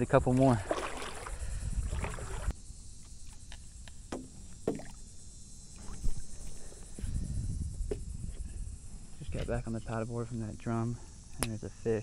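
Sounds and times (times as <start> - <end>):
paddle splashing in shallow water: 0.3 - 2.5, 4.1 - 5.0.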